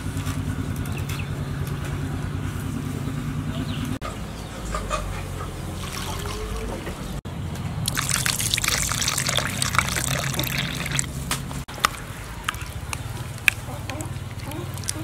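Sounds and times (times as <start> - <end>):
liquid trickling into bowl: 5.8 - 6.8, 7.9 - 11.2, 14.2 - 15.0.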